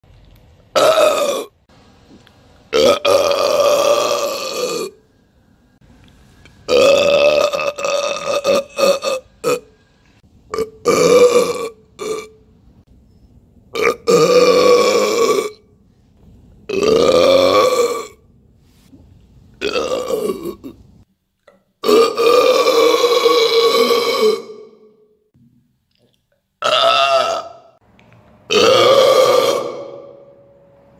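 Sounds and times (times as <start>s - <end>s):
man burping loudly: 0.8s - 1.6s, 2.7s - 5.0s, 6.7s - 9.7s, 10.5s - 12.4s, 13.8s - 15.6s, 16.7s - 18.2s, 19.6s - 20.8s, 21.8s - 24.8s, 26.6s - 27.8s, 28.5s - 30.2s.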